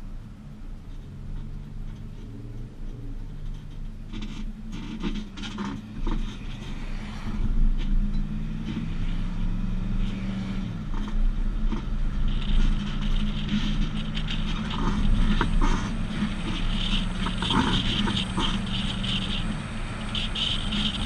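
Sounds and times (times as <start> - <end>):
road and wind noise: 0.0 - 21.0
truck engine drone: 0.0 - 21.0.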